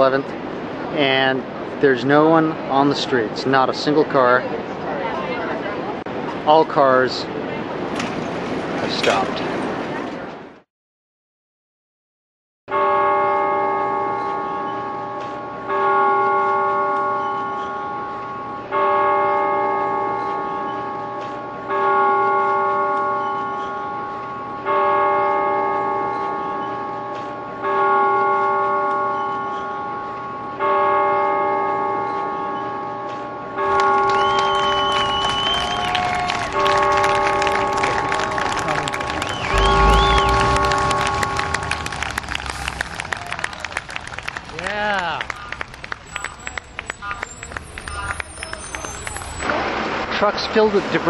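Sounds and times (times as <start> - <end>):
bell tolling slowly: 12.7 - 35.1, 36.2 - 44.4.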